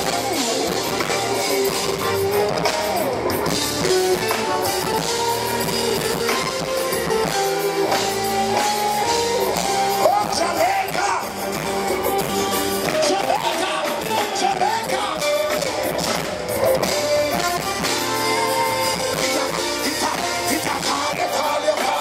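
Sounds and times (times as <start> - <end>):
live rock band playing: 0.0 - 22.0
wordless vocal line: 12.3 - 17.5, 18.4 - 22.0.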